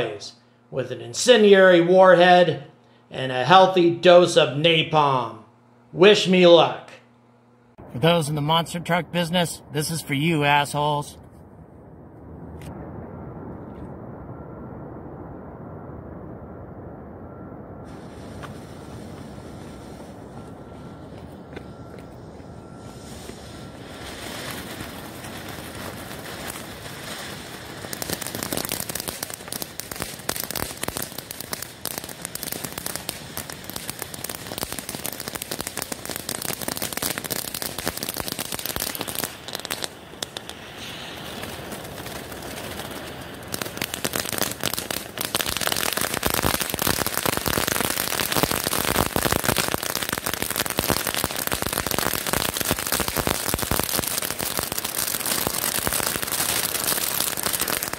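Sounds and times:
spark fountain hissing and crackling: 0:23.0 - 0:57.9.

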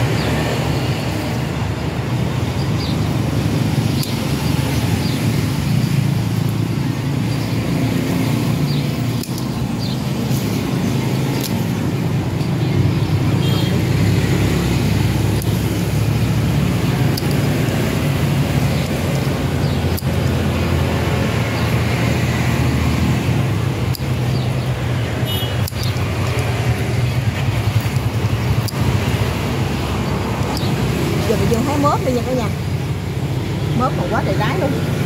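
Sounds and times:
scissors snipping lettuce stems: 0:03.2 - 0:12.1, 0:14.3 - 0:32.2.

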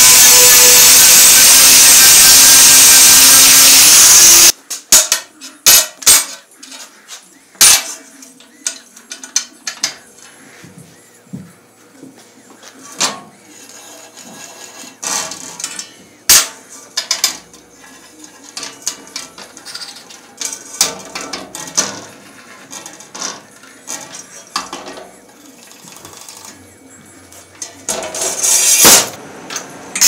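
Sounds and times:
short scraping sounds: 0:28.1 - 0:29.2.

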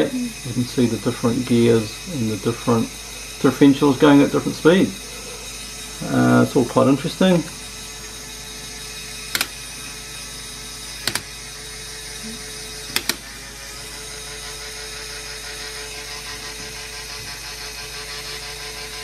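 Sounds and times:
plastic gears whirring: 0:01.4 - 0:19.0
sharp double clicks: 0:09.3 - 0:09.6, 0:11.0 - 0:11.3.

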